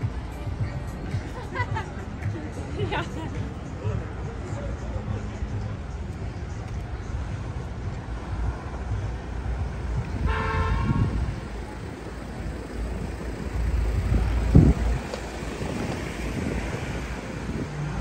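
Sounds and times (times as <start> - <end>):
street traffic rumble: 0.0 - 18.0
car horn beep: 10.2 - 11.3.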